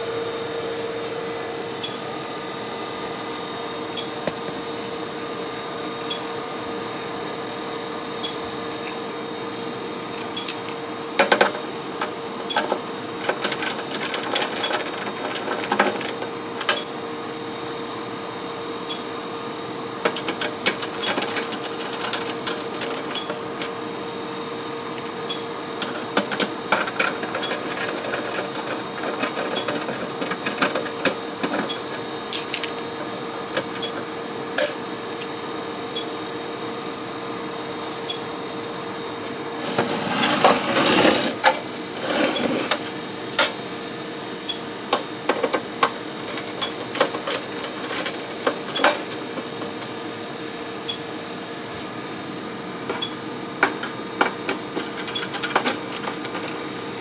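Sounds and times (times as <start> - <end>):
steady hum: 0.0 - 57.0
metal parts scraping rattle: 12.6 - 16.3, 20.2 - 23.3, 25.9 - 31.7, 39.6 - 43.5, 46.3 - 49.3.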